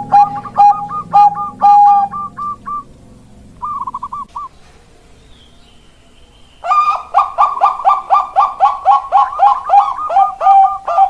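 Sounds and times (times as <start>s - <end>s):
dove cooing: 0.0s - 4.7s, 6.6s - 11.0s.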